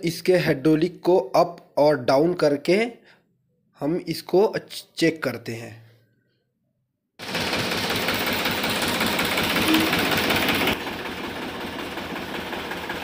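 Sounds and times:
tractor diesel engine clattering: 0:07.3 - 0:13.0.

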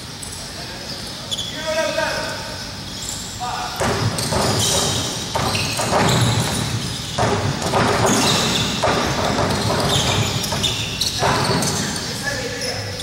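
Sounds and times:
basketball practice din: 0:00.0 - 0:13.0
basketball bouncing: 0:03.8 - 0:12.1.

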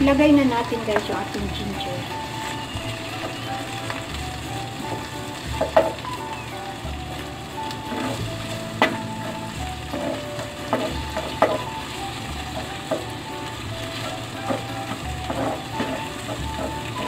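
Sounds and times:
onion and garlic sizzling in oil: 0:00.0 - 0:17.0
spatula scraping a pan: 0:07.0 - 0:17.0.

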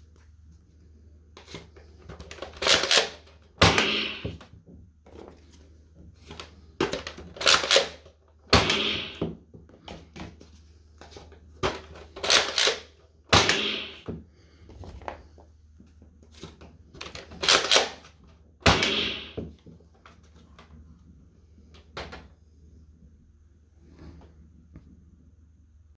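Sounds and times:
toy gun plastic clacks: 0:02.2 - 0:03.3, 0:06.8 - 0:08.1, 0:11.7 - 0:13.6, 0:17.0 - 0:18.0.

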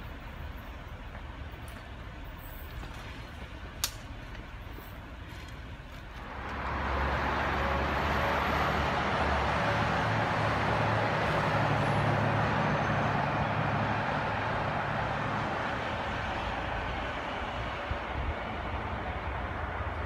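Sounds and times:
traffic rumble: 0:00.0 - 0:20.0.

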